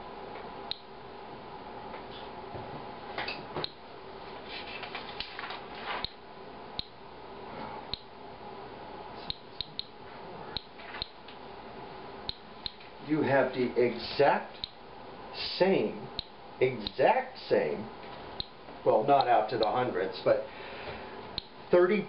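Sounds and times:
geiger counter clicking: 0.7s - 0.9s, 6.8s - 7.0s, 10.6s - 11.2s, 16.2s - 16.4s.

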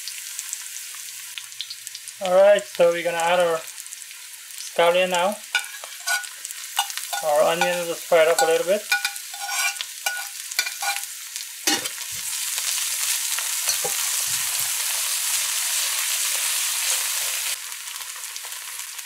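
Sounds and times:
onions sizzling in hot oil: 0.0s - 19.0s
metal spoon clinking against pan: 5.6s - 11.1s, 11.7s - 12.0s, 13.7s - 14.0s.

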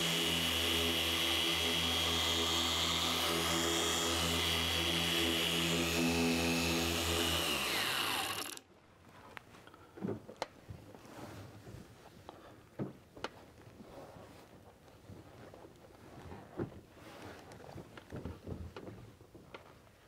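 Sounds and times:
polisher motor whine: 0.0s - 8.6s.

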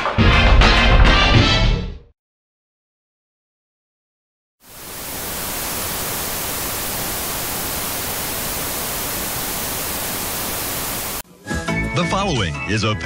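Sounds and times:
television static hiss: 4.6s - 11.2s.

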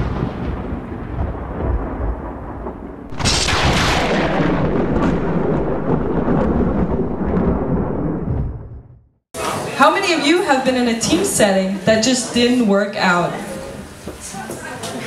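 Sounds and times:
thunder rumble and crash: 0.0s - 9.2s.

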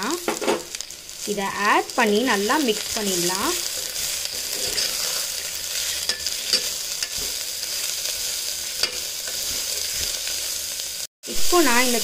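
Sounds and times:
vegetables sizzling in hot oil: 0.0s - 12.0s
metal spatula scraping pot: 3.6s - 10.2s.

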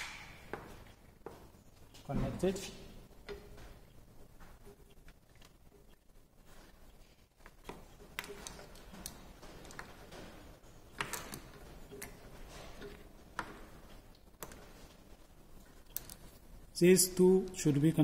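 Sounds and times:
clicks and rustling of cables: 7.4s - 15.0s.

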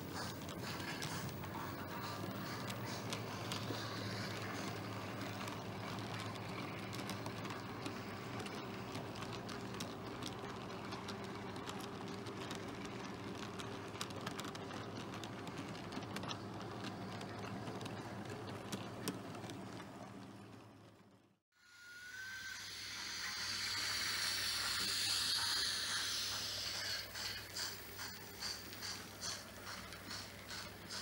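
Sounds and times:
wheels clicking over rail joints: 0.0s - 21.2s, 23.8s - 31.0s
model train rolling hum: 0.0s - 31.0s.

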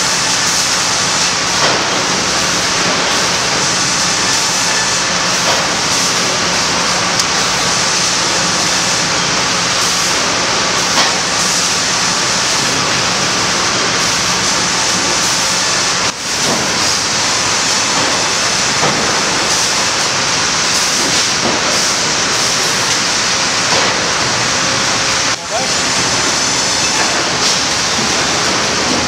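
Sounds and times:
sawmill machinery din: 0.0s - 29.0s.

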